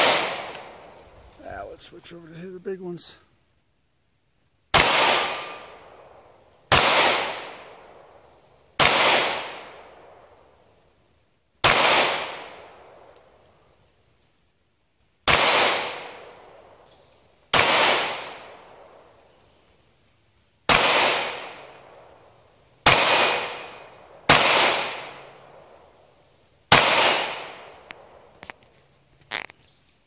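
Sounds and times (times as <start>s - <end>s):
gunshots with long echo: 0.0s - 1.0s, 4.7s - 8.2s, 8.8s - 10.6s, 11.6s - 13.4s, 15.2s - 16.9s, 17.5s - 19.2s, 20.7s - 25.8s, 26.7s - 28.4s.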